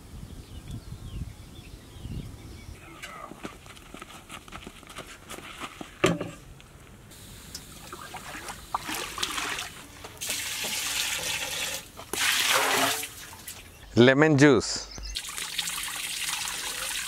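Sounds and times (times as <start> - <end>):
liquid pouring into metal pot: 15.2 - 17.0.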